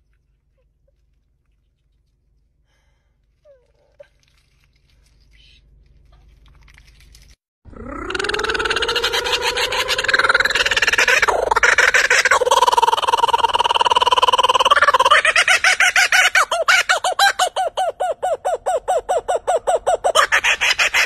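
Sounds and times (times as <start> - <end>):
kookaburra laughing call: 8.0 - 21.0.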